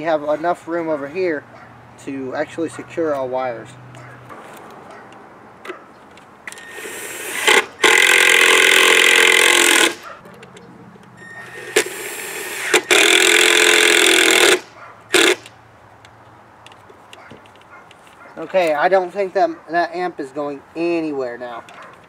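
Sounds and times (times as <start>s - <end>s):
cordless drill driving screws: 6.5s - 10.1s, 11.2s - 15.5s.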